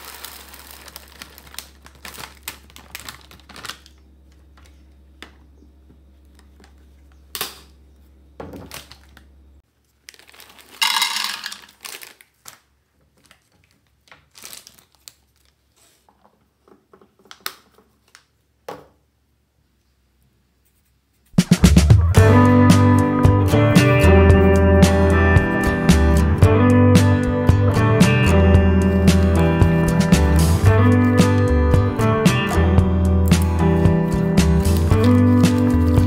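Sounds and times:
plastic bag crinkling: 0:00.0 - 0:04.9, 0:08.6 - 0:16.1, 0:34.1 - 0:36.0
kibble rattling into plastic container: 0:10.2 - 0:12.0
treats clattering into plastic box: 0:10.5 - 0:12.0.

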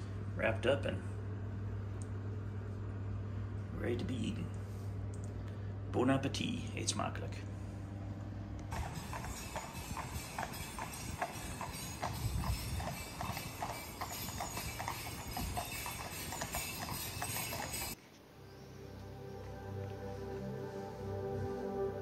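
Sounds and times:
hooves clip-clopping on asphalt: 0:08.7 - 0:18.0
calm background music: 0:18.3 - 0:22.0.

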